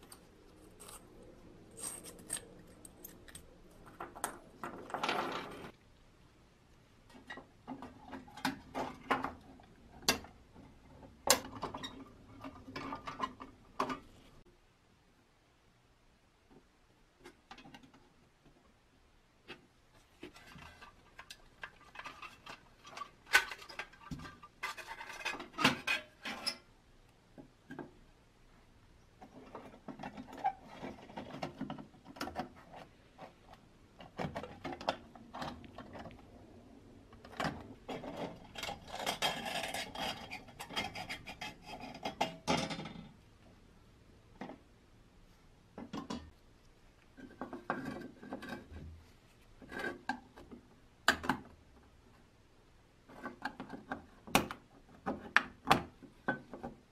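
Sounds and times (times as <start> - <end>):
metal scraping and rasping: 0.0 - 3.4.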